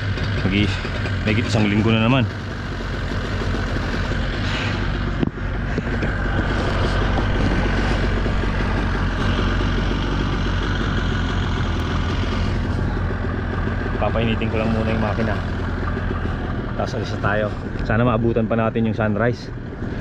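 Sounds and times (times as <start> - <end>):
outboard motor idling: 0.0 - 20.0.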